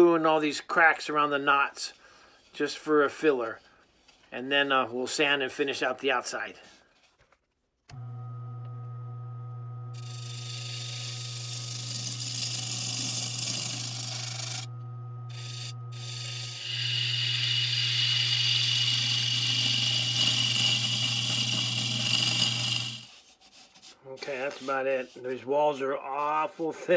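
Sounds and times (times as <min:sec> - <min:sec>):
lathe motor hum: 0:07.9 - 0:23.1
tool cutting spinning wood: 0:09.9 - 0:23.3.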